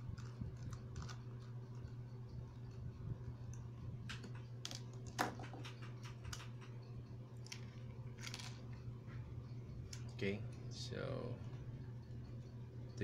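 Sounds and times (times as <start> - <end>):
steady low hum: 0.0 - 13.0
plastic clicks and knocks: 4.1 - 6.7.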